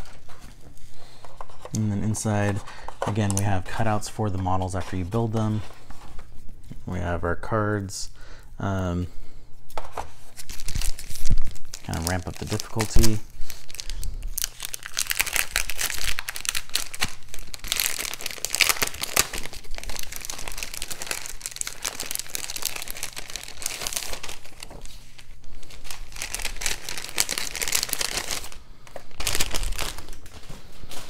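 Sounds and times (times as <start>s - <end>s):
plastic wrapping crinkling: 9.8s - 31.0s.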